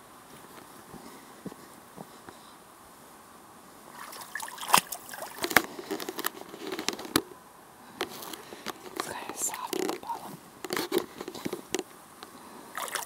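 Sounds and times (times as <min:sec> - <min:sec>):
boots wading through water: 0:03.9 - 0:06.8, 0:12.7 - 0:13.0
ice and brush cracking: 0:04.6 - 0:07.2, 0:08.0 - 0:11.8.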